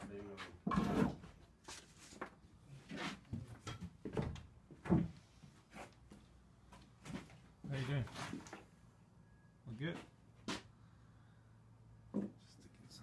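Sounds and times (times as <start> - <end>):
footsteps on wooden subfloor: 3.2 - 8.6.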